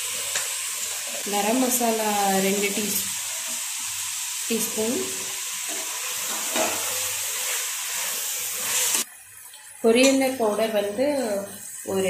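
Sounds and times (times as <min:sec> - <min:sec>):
vegetables sizzling in a pot: 0:00.0 - 0:12.0
spoon stirring and scraping pot: 0:05.6 - 0:09.1.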